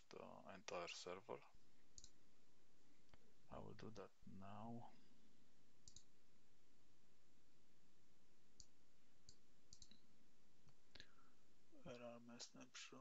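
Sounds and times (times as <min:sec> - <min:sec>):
low steady hiss: 0:00.0 - 0:13.0
faint computer mouse clicks: 0:02.0 - 0:02.2, 0:05.8 - 0:06.1, 0:08.6 - 0:10.0.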